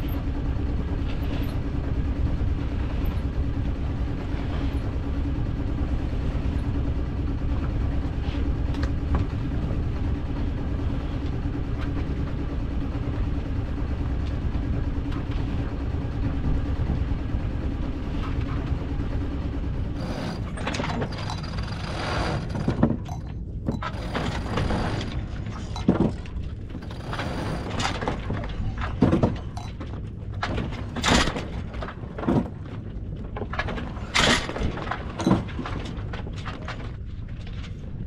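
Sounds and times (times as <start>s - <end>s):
wind rumble: 0.0s - 38.0s
sail flogging and snapping: 20.0s - 38.0s.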